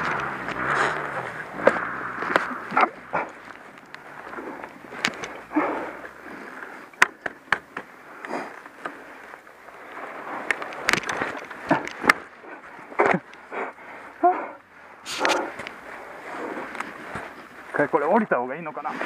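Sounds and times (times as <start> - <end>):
snow crunching and scraping: 0.0 - 19.0
sharp knocks and clicks: 7.0 - 7.9.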